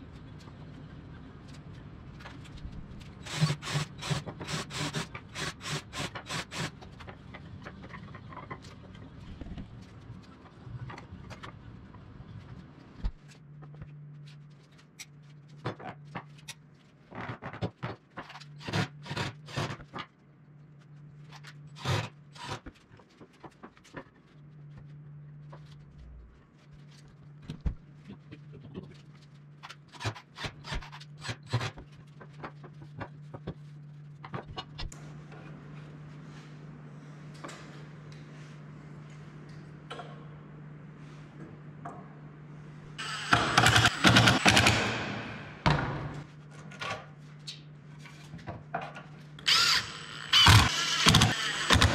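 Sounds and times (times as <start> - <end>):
steady low hum: 30.8 - 51.9.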